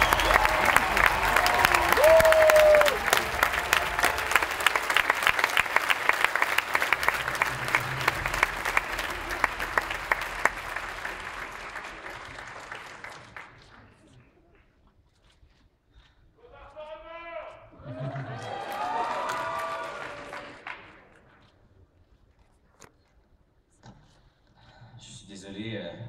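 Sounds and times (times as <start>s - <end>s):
audience applauding: 0.0s - 14.4s, 17.8s - 21.4s.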